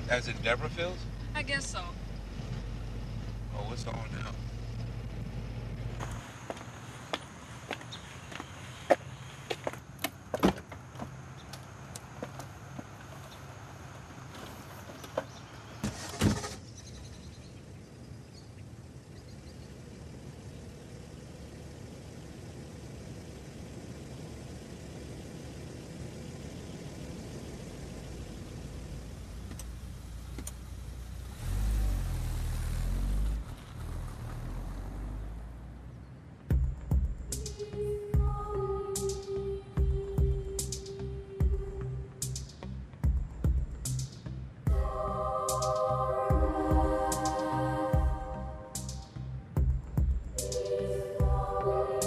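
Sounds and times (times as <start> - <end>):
car engine running: 0.0 - 52.0
car passing by: 26.6 - 36.3.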